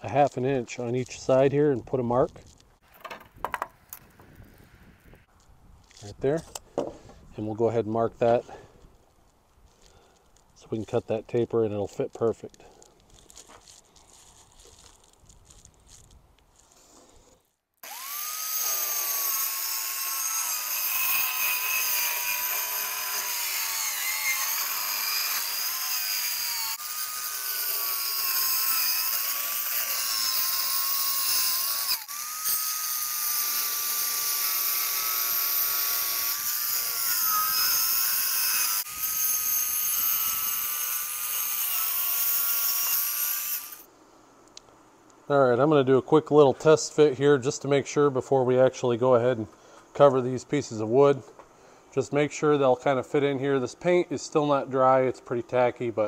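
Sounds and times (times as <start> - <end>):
circular saw cutting plywood: 17.8 - 43.9.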